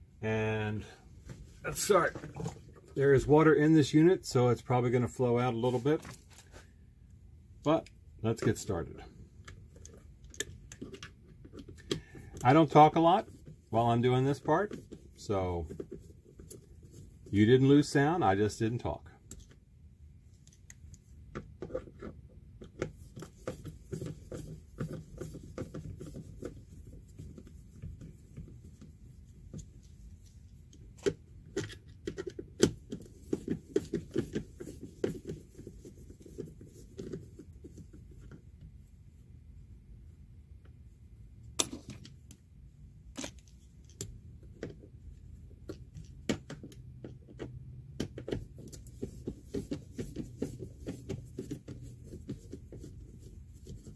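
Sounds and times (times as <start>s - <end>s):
small clicks and scrapes: 9.3s - 17.4s, 20.2s - 38.9s.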